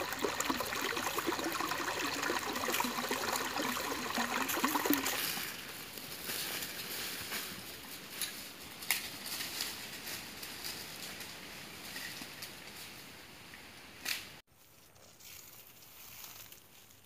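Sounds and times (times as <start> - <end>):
trickling stream: 0.0 - 5.8
footsteps crunching on dry leaves: 14.6 - 17.0.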